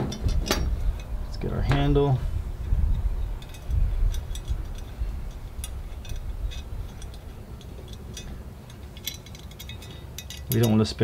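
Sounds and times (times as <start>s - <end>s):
steady low rumble: 0.0s - 10.6s.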